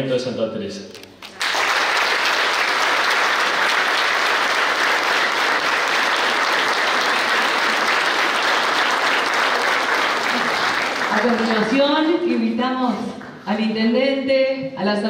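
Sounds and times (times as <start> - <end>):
crowd applauding: 1.2 - 12.1.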